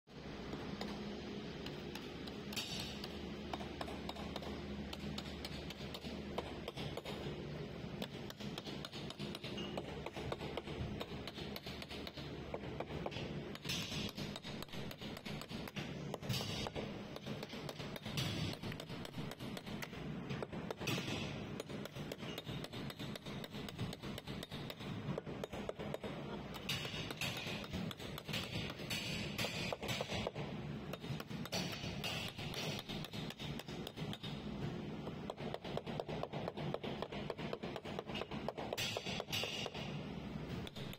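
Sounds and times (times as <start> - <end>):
steady low hum: 0.1 - 40.9
hammer tapping steel scraper: 8.0 - 34.4.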